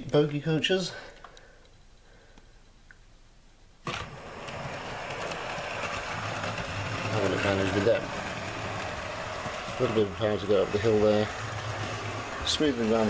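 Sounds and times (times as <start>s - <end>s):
model train motor whirring on rails: 3.9s - 13.0s.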